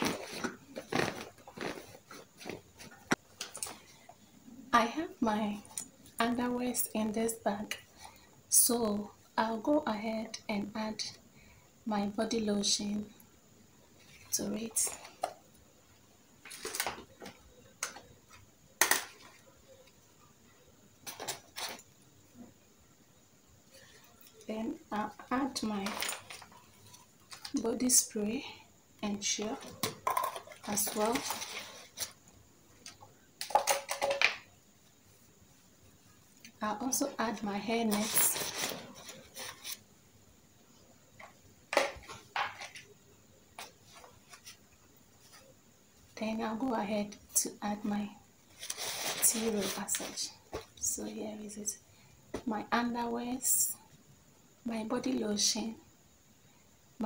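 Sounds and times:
fabric pouch clicks and rustles: 0:00.0 - 0:02.6
items clicking and rustling: 0:00.0 - 0:03.9, 0:16.4 - 0:20.0, 0:21.0 - 0:22.0, 0:25.6 - 0:27.6, 0:29.4 - 0:32.2, 0:32.8 - 0:34.5, 0:37.8 - 0:39.8, 0:41.2 - 0:42.9.

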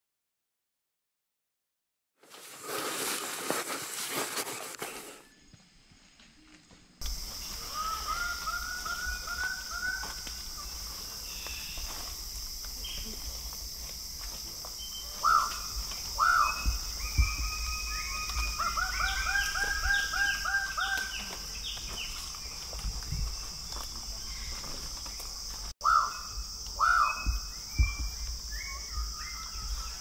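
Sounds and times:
birds of paradise calling: 0:07.0 - 0:30.0
higher bird calls: 0:07.1 - 0:12.0, 0:14.8 - 0:22.8, 0:25.8 - 0:30.0.

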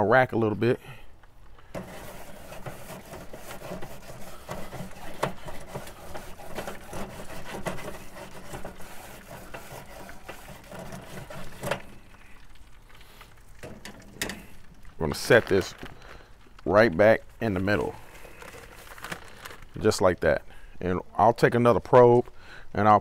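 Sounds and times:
grill brush scraping grate: 0:01.6 - 0:16.2.

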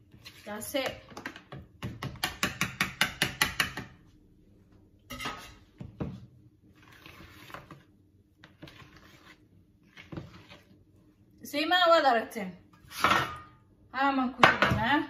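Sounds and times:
batter stirred with knocks and scraping: 0:00.0 - 0:04.2, 0:05.1 - 0:11.4.

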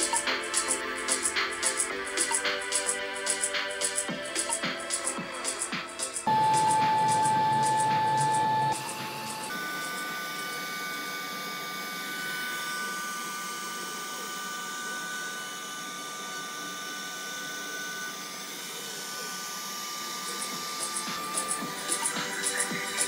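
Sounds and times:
rushing hiss of cutting: 0:00.0 - 0:07.2, 0:17.3 - 0:23.0
router spindle whine: 0:00.0 - 0:23.0.

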